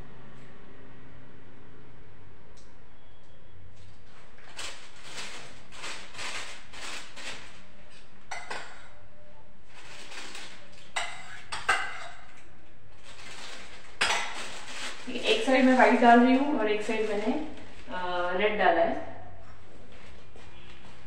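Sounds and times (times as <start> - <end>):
utensil clinking against bowl: 8.3 - 8.9.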